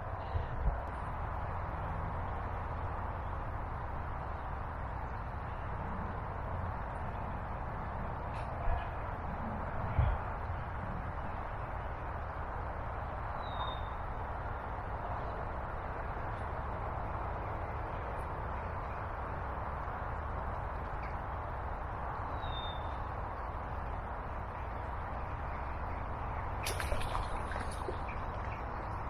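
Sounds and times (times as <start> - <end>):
flowing river water: 24.5 - 29.0.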